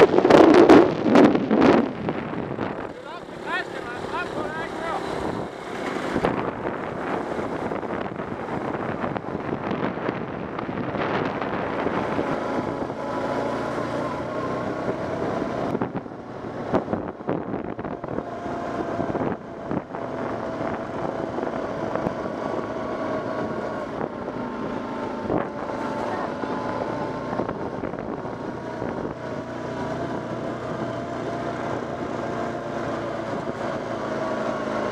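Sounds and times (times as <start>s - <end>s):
atv engine running: 0.0s - 34.9s
wind buffeting microphone: 0.0s - 34.9s.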